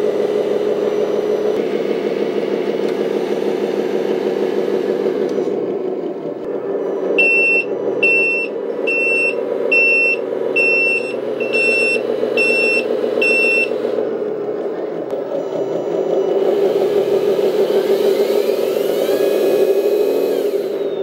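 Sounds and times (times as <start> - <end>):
simulated diesel engine idle: 0.0 - 21.0
high-pitched reversing alarm beeps: 7.1 - 13.8, 15.2 - 18.7.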